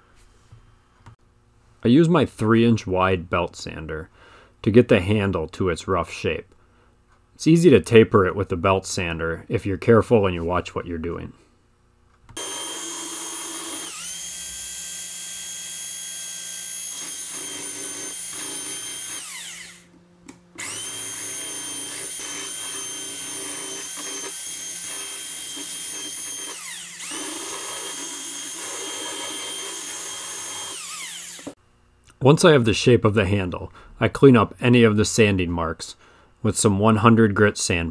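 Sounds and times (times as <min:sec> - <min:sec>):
belt sander whining: 0:12.4 - 0:31.6.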